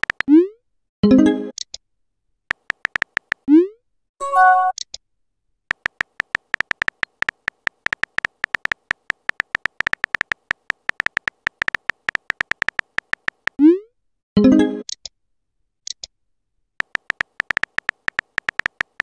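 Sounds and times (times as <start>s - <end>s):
phone keyboard tapping clicks: 0.0s - 0.3s, 2.5s - 3.5s, 5.7s - 13.6s, 16.8s - 19.0s
message chime: 4.2s - 4.7s.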